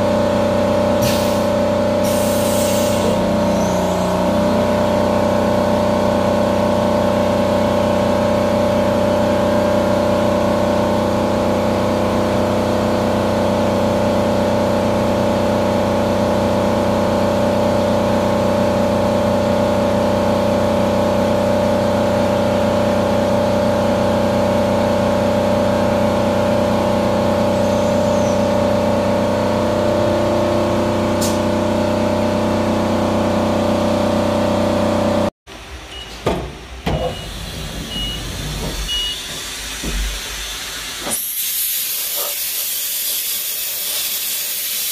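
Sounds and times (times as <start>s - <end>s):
coolant spray hissing: 39.6s - 44.9s.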